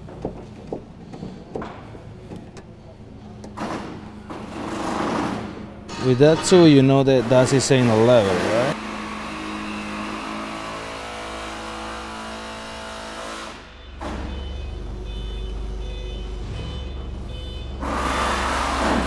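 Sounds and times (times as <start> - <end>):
machine hum with constant tones: 0.0 - 19.0.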